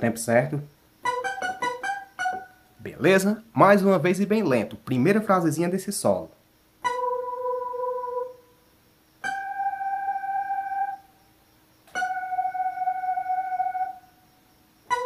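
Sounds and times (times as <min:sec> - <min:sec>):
synth lead held notes: 0:12.0 - 0:14.1.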